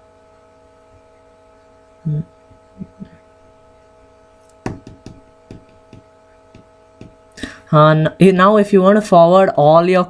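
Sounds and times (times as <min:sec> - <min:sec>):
steady hum with tones: 0:00.0 - 0:10.0
phone handling thumps: 0:04.7 - 0:07.2.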